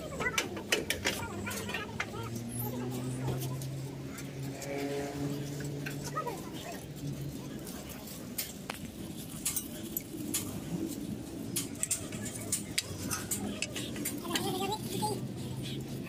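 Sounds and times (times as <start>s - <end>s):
workshop background: 0.0s - 16.0s.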